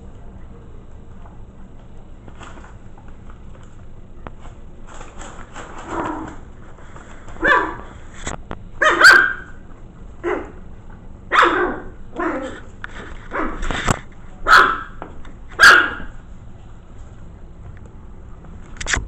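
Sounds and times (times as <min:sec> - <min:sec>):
puppy yapping: 0:07.4 - 0:07.9, 0:08.8 - 0:09.6, 0:10.2 - 0:10.6, 0:11.3 - 0:12.7, 0:13.3 - 0:13.7, 0:14.5 - 0:15.0, 0:15.6 - 0:16.2.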